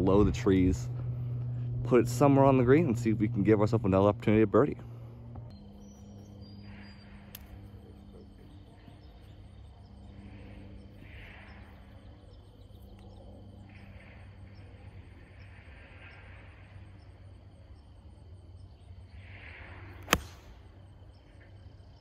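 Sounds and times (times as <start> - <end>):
insects chirping: 0.0 - 22.0
low rumble: 0.0 - 22.0
golf club striking ball: 20.0 - 20.6.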